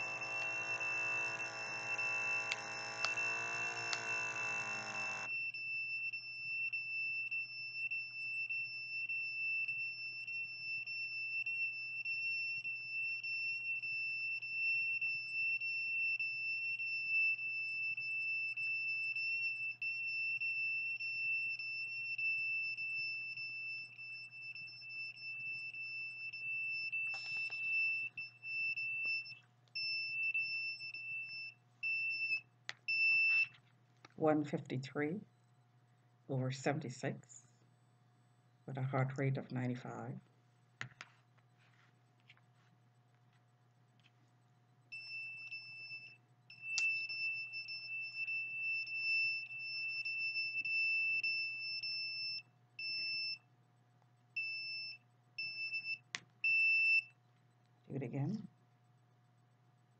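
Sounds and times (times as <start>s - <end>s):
high-pitched alarm tone: 0.0s - 7.6s.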